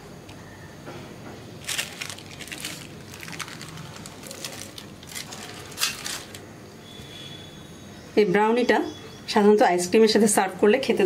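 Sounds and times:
baking paper crinkling: 1.6 - 6.4.

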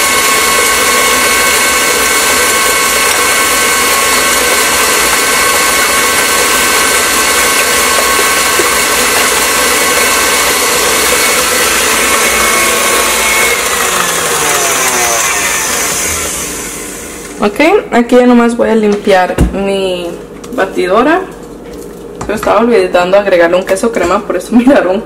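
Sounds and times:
stand mixer motor whining: 0.0 - 17.5.

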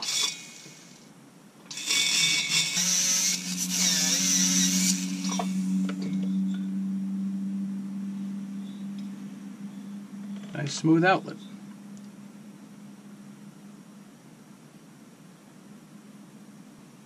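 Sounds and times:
burr grinding metal: 0.0 - 1.1, 1.7 - 6.9
power tool humming: 0.0 - 1.1, 1.7 - 13.4.

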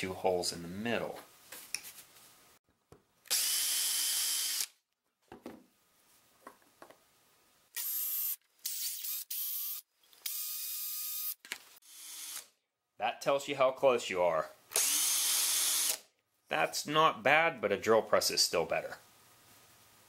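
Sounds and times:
cordless drill whining: 3.3 - 4.7, 14.7 - 16.0.

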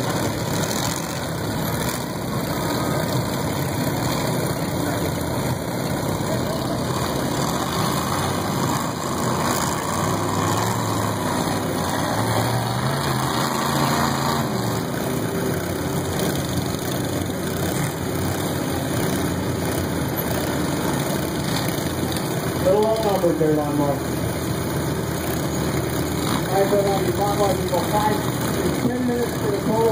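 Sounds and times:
lawn mower engines revving: 0.0 - 29.9.

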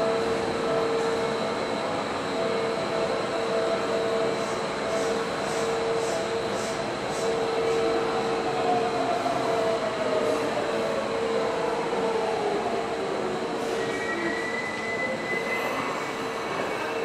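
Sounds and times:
electric train hum and whine: 0.0 - 17.0.

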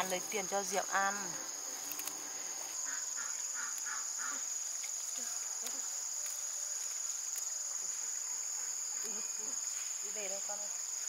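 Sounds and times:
crickets chirring: 0.0 - 11.0
bird calls: 2.8 - 4.5.

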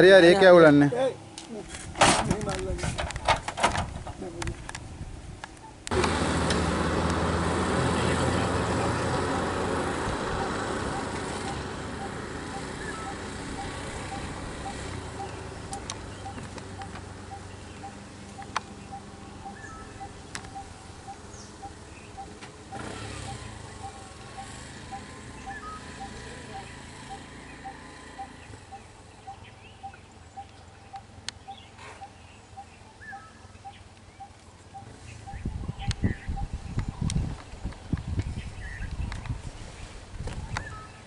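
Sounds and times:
auto-rickshaw engine running: 5.8 - 41.0
faint regular ticking: 10.4 - 22.8.

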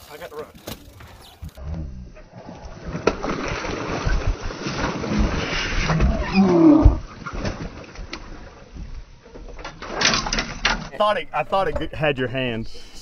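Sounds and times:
water splashing: 2.3 - 9.5.

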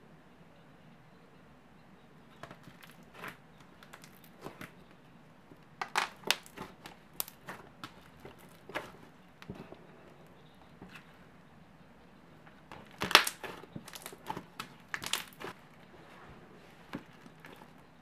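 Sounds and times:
slime crackling pops and clicks: 12.7 - 15.5.

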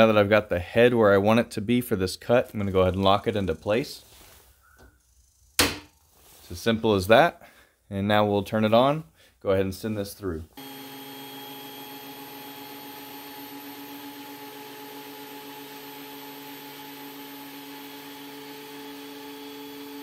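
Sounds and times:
thickness planer motor whine: 10.6 - 20.0.

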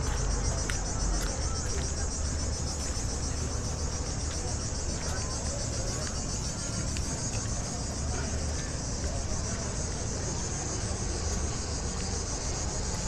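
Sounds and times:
cicadas buzzing: 0.0 - 13.0.

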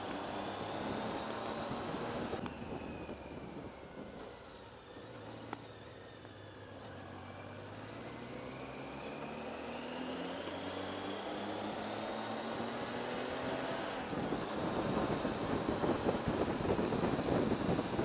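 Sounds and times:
motorcycle engine accelerating: 0.0 - 18.0
wind buffeting on microphone: 14.1 - 18.0.

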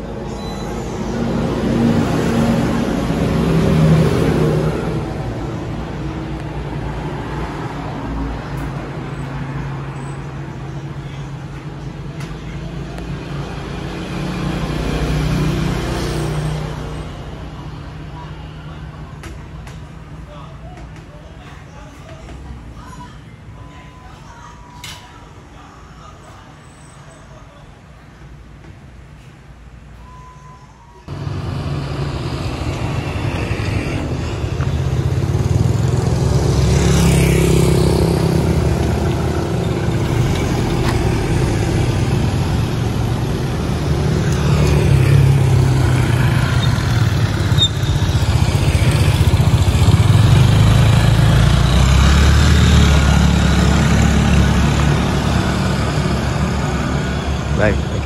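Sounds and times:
street traffic rumble: 0.0 - 58.0.

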